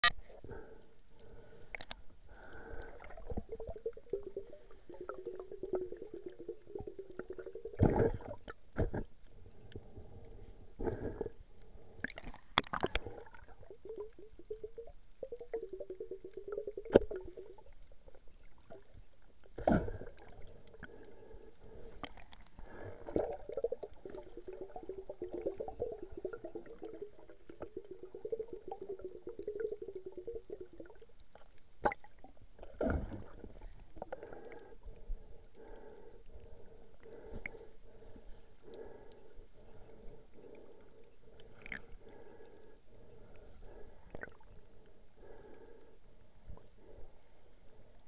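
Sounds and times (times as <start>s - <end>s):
underwater bubbling and gurgling: 0.0s - 48.0s.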